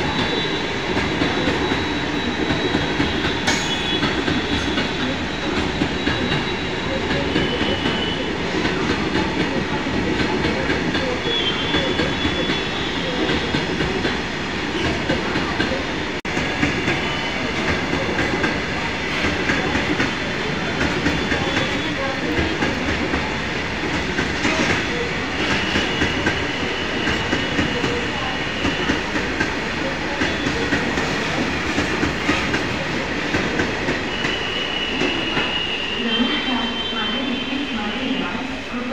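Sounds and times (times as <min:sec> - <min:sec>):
high wheel squeal: 0:00.0 - 0:08.3, 0:33.9 - 0:38.6.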